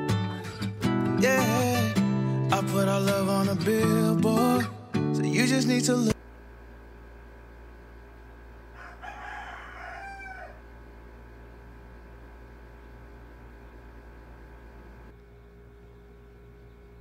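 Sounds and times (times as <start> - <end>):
low room tone hum: 6.2 - 17.0
rooster crowing: 8.7 - 10.9.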